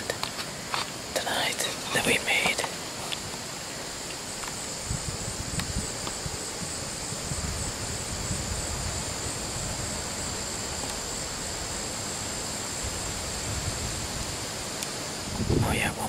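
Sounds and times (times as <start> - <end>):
wind rustling leaves: 0.0 - 16.0
wind buffeting microphone: 2.9 - 12.0, 12.6 - 16.0.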